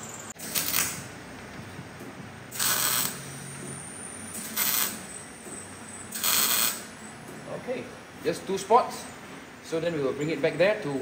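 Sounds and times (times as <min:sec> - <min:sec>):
welding arc hiss: 0:00.0 - 0:01.2, 0:02.5 - 0:05.3, 0:05.9 - 0:07.0.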